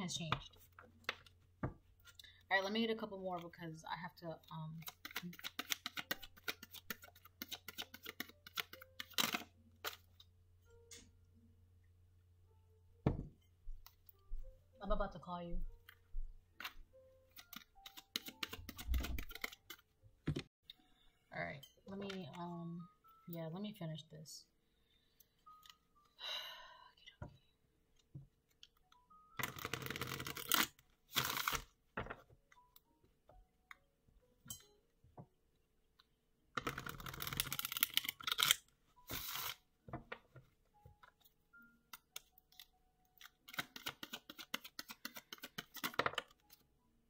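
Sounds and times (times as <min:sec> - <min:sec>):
cards shuffled by hand: 0:04.8 - 0:10.1, 0:16.6 - 0:19.8, 0:29.4 - 0:31.7, 0:36.6 - 0:39.6, 0:43.4 - 0:46.6.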